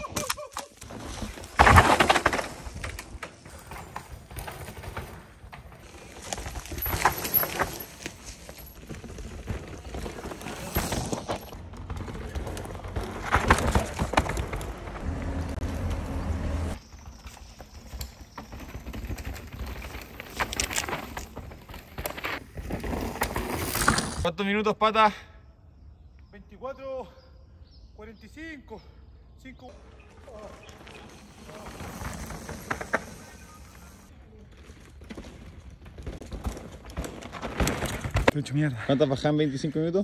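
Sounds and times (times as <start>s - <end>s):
bike tyres over dirt and roots: 0.0s - 24.3s, 29.5s - 39.6s
bike knocks and rattles: 0.9s - 15.1s, 34.6s - 38.4s.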